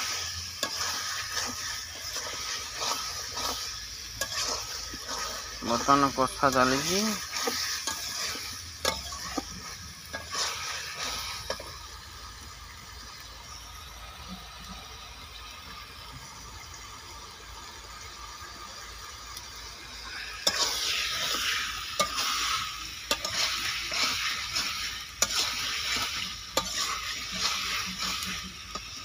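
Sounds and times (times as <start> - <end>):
metal spatula scraping a pan: 0.0 - 11.8, 20.1 - 29.0
food sizzling in a pan: 0.0 - 29.0.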